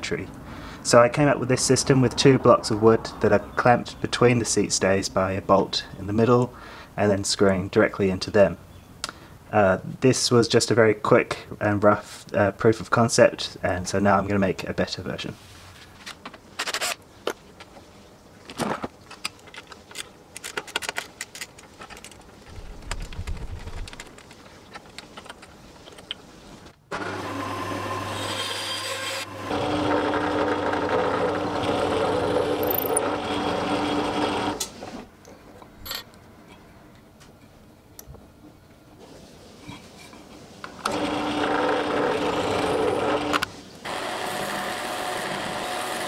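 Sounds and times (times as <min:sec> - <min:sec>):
band saw cutting wood: 0:26.9 - 0:34.5, 0:40.9 - 0:46.0.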